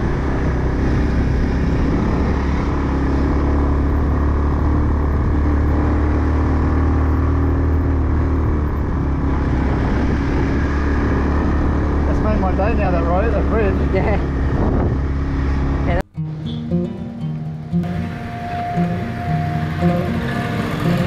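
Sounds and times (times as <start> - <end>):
wind noise: 0.0 - 5.8, 7.5 - 16.1
scooter engine running: 0.0 - 17.0, 17.7 - 21.0
road noise: 0.0 - 21.0.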